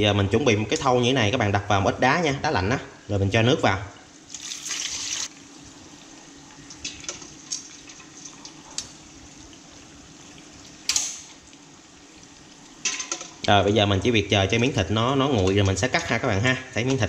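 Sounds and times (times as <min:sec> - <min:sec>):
water poured onto ice: 0:04.3 - 0:05.3.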